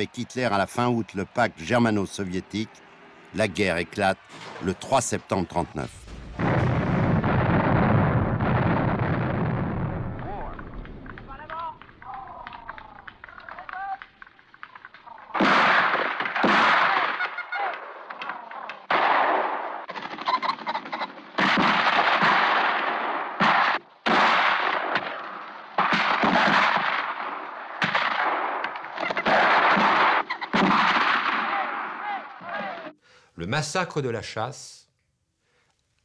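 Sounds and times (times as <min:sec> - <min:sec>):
shotgun shots: 0:04.2 - 0:05.2, 0:06.0 - 0:13.7, 0:15.3 - 0:17.8, 0:18.9 - 0:32.9.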